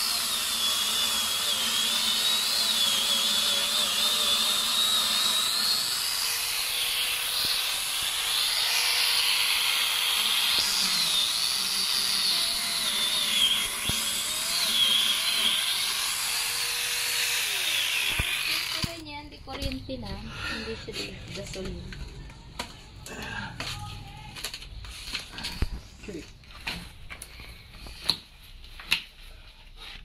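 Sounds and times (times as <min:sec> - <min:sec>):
angle grinder chain cutting wood: 0:00.0 - 0:19.0.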